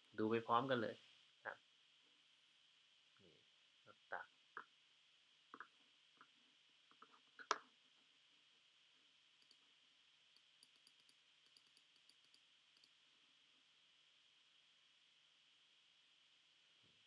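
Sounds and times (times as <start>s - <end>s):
low steady hiss: 0.0s - 17.0s
computer mouse clicks: 9.4s - 9.6s, 10.3s - 13.0s.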